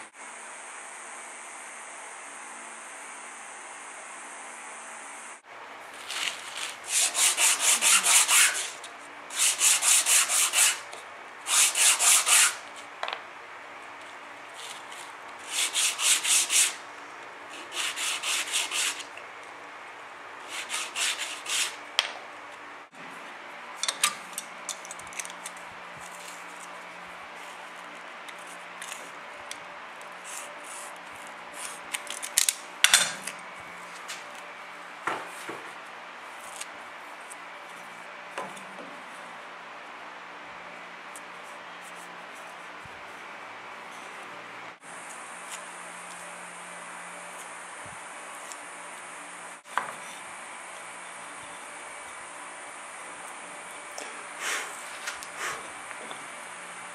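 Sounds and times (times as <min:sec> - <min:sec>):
wooden blocks rubbed on sanding board: 0:06.0 - 0:10.9, 0:11.5 - 0:12.6, 0:14.6 - 0:16.8, 0:17.5 - 0:19.1, 0:20.5 - 0:21.8.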